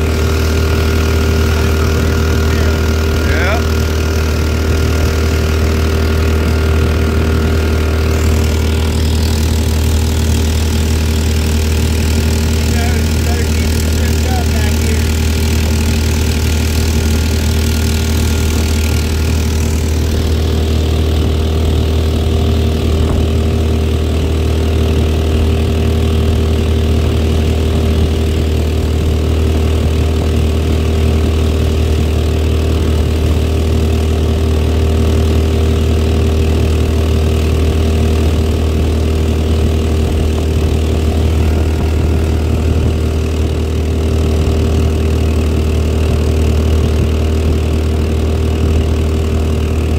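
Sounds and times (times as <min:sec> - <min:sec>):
boat engine running: 0:00.0 - 0:49.9.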